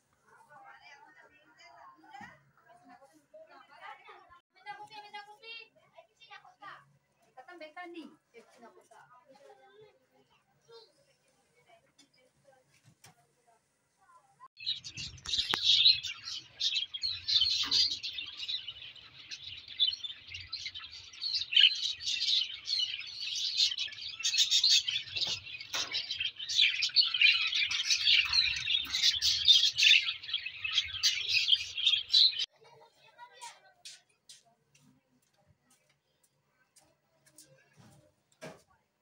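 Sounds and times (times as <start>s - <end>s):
lovebirds chirping rapidly: 14.6s - 32.5s.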